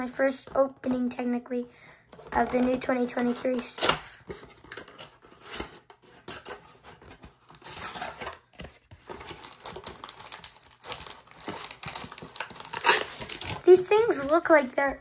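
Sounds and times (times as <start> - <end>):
rustling and crinkling wrappers: 2.1 - 15.0.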